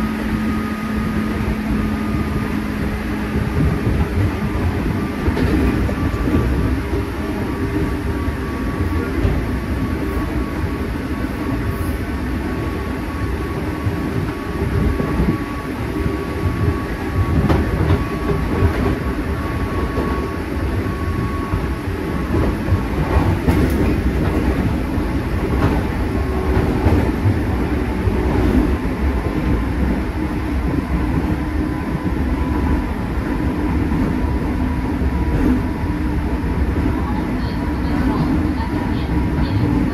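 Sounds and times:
train wheels rumbling on rail: 0.0 - 39.9
clacks over rail joints: 3.5 - 6.7, 16.4 - 19.1, 22.3 - 30.0.

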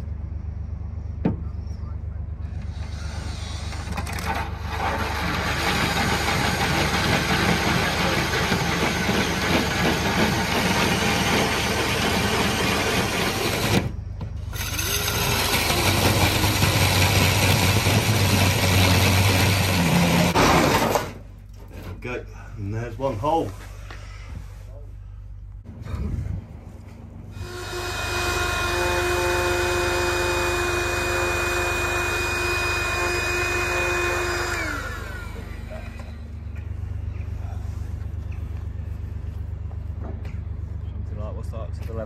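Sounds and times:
power drill cutting steel: 4.6 - 13.8, 14.5 - 21.0, 27.4 - 35.8.

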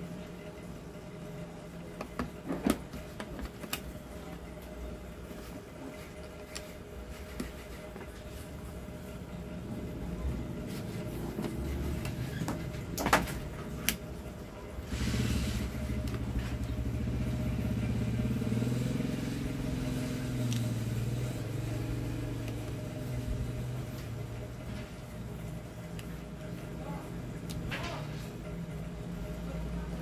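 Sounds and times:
vehicle engine droning: 14.9 - 24.9.

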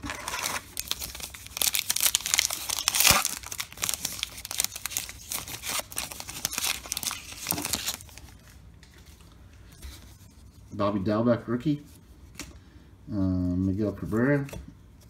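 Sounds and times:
wrapper tearing and crumpling: 0.0 - 8.4.

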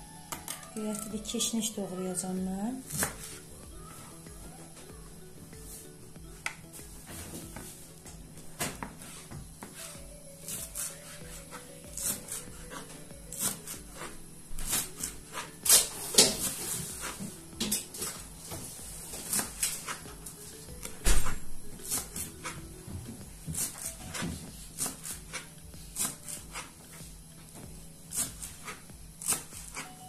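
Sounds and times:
knife chopping on cutting board: 2.9 - 3.4, 10.5 - 18.1, 19.2 - 20.1, 23.4 - 26.7, 28.1 - 29.9.

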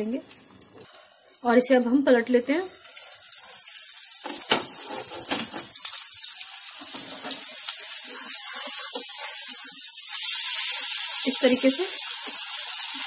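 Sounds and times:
patties sizzling in oil: 0.0 - 13.0
spatula scraping pan: 4.7 - 5.6, 6.9 - 9.8.

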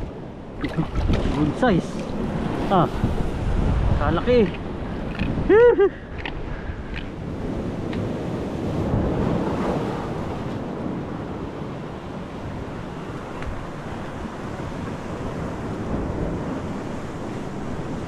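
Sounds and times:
surf washing over rocks: 0.0 - 18.0
wind buffeting microphone: 0.0 - 18.0
person exclaiming: 5.5 - 6.0.

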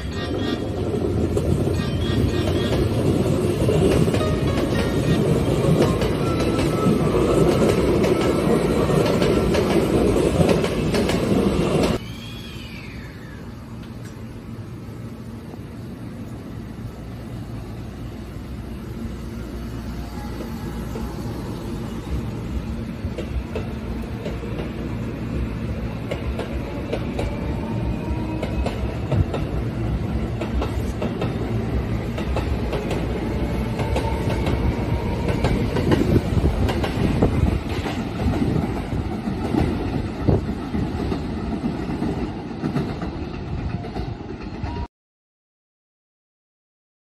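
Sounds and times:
wheels clacking over rail joints: 0.4 - 12.0, 20.0 - 44.8.

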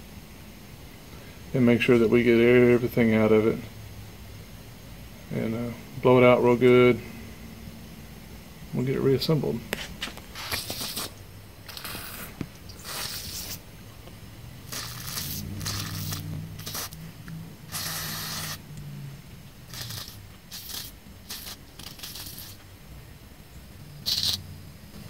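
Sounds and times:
aerosol spray hissing in bursts: 9.8 - 13.7, 14.6 - 19.0, 19.6 - 22.7, 23.9 - 25.0.

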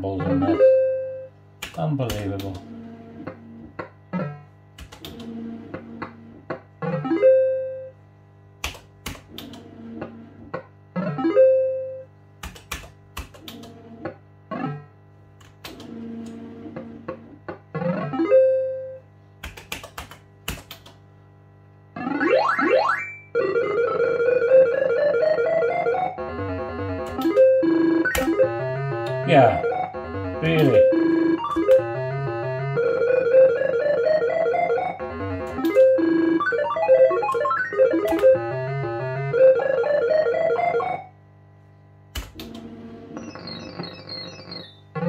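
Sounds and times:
electronic win tune: 22.1 - 41.1.

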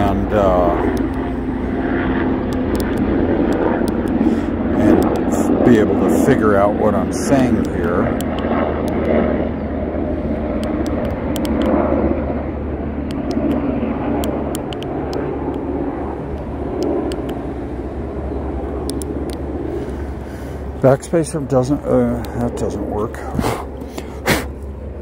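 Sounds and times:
faint hum: 0.0 - 25.0
low background rumble: 0.0 - 25.0
faint sharp clicks: 18.9 - 19.4.

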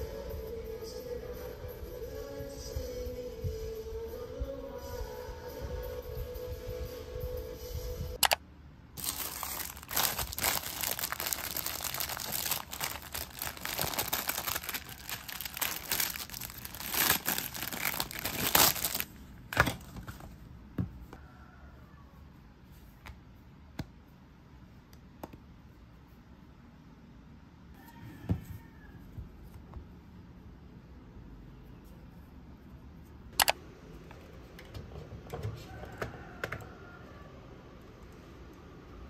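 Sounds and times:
plastic bag crinkling: 9.0 - 19.2.

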